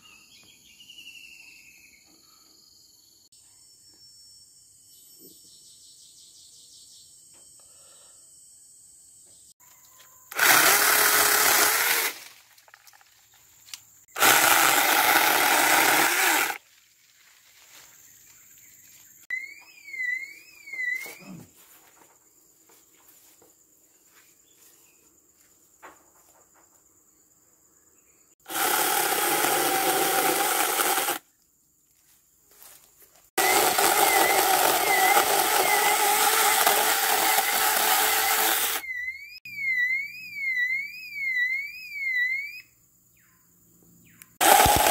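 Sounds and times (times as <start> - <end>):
electric chainsaw cutting branches: 10.3 - 12.4, 14.1 - 16.6, 28.4 - 31.2, 33.4 - 38.9, 44.4 - 44.9.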